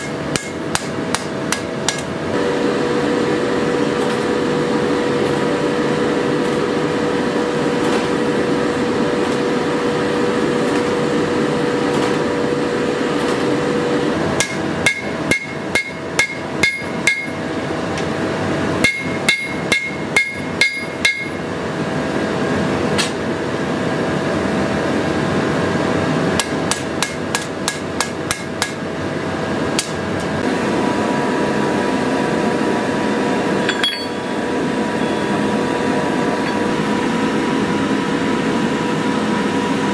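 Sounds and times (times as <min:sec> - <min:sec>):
hammer striking metal on anvil: 0:00.0 - 0:02.1, 0:14.4 - 0:17.5, 0:18.8 - 0:21.4, 0:26.4 - 0:28.8, 0:33.6 - 0:35.5, 0:36.4 - 0:36.7
forge blowing noise: 0:00.0 - 0:39.9
anvil ringing: 0:14.4 - 0:17.4, 0:18.8 - 0:21.4, 0:33.6 - 0:35.5.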